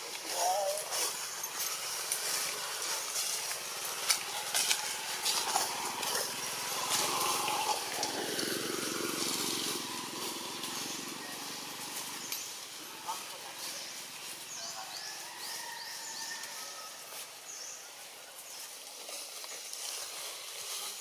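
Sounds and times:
outdoor ambient noise: 0.0 - 21.0
distant engine: 0.8 - 15.0.

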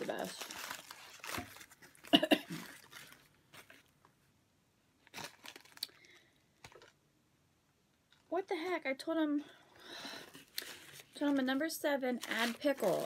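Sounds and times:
foil paper wrapper crinkling: 0.0 - 4.0, 5.0 - 7.0, 10.3 - 13.0.

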